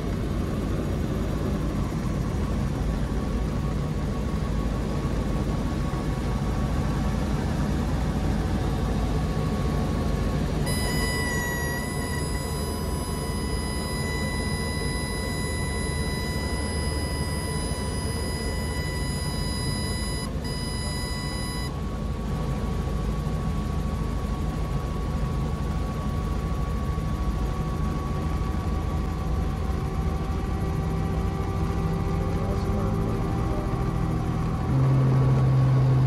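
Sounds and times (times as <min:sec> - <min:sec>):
helicopter rotor and engine rumble: 0:00.0 - 0:36.0
warning horn high tone: 0:10.7 - 0:21.7, 0:34.7 - 0:36.0.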